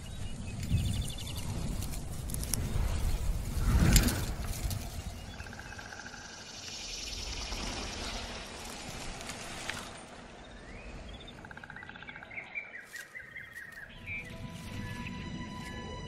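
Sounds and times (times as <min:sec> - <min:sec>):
steady rushing noise: 0:00.0 - 0:11.4
small birds chirping and trilling: 0:00.0 - 0:16.0.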